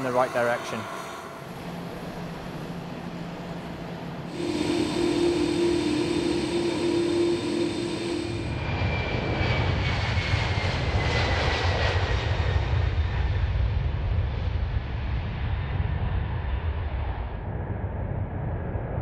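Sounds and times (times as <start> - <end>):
deep takeoff rumble: 0.0 - 19.0
jet engine whine: 0.0 - 19.0.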